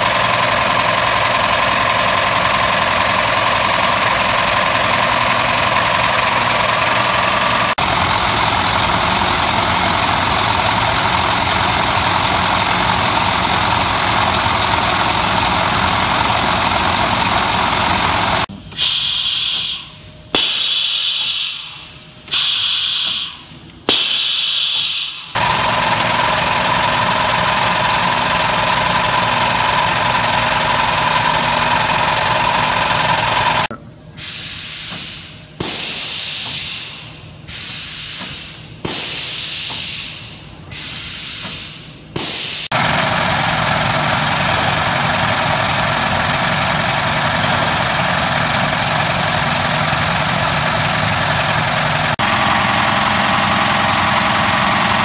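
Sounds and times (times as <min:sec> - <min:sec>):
grinder machine droning: 0:00.0 - 0:18.5, 0:25.4 - 0:33.8, 0:42.7 - 0:55.0.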